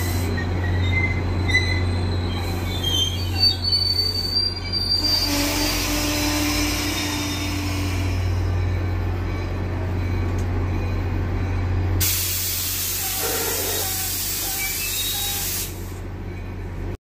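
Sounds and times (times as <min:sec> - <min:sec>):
faint squeals: 0:00.0 - 0:08.4, 0:13.0 - 0:15.5
train moving with low drone: 0:00.0 - 0:17.0
air brakes hissing: 0:12.0 - 0:16.1.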